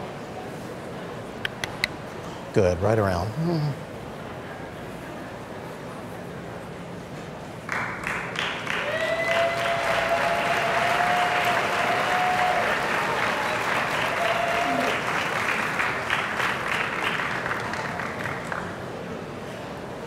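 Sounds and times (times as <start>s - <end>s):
audience applauding: 7.7s - 18.9s.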